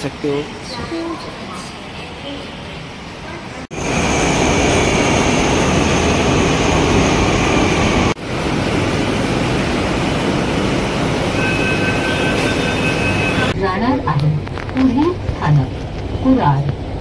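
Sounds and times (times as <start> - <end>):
train rumble and hiss: 0.0 - 13.6.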